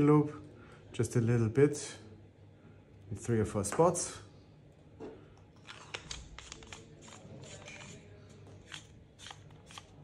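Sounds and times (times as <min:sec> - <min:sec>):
clicks and scrapes of screwing: 0:05.6 - 0:10.0.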